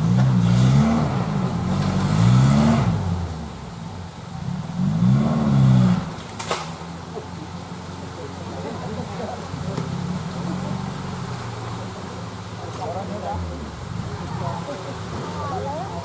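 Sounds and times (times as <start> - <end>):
engine revving: 0.0 - 6.7.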